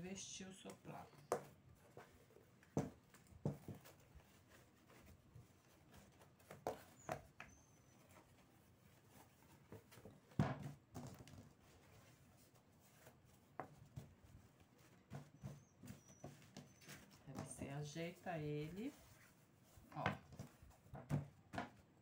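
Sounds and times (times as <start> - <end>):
fabric rustling: 0.8 - 7.1, 11.5 - 20.9.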